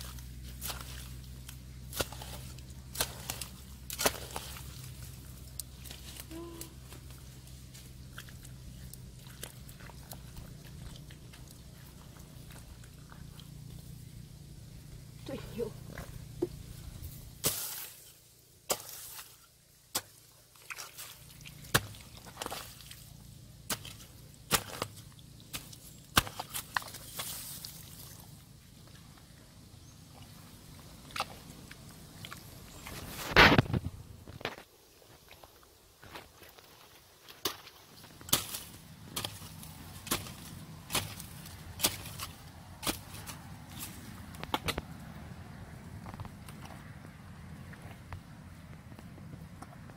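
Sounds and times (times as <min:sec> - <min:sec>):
hoe chopping into soil: 0:01.9 - 0:04.7, 0:17.4 - 0:18.1, 0:18.7 - 0:20.2, 0:23.7 - 0:27.6, 0:37.4 - 0:44.8.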